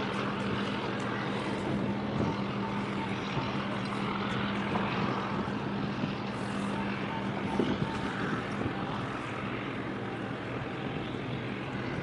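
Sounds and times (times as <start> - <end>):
ship engines droning: 0.0 - 12.0.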